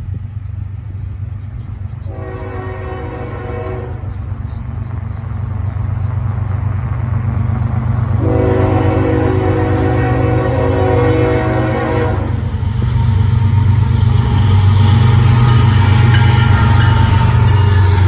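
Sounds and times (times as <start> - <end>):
train rumble: 0.0 - 18.0
locomotive air horn blasts: 2.1 - 4.0, 8.2 - 12.4.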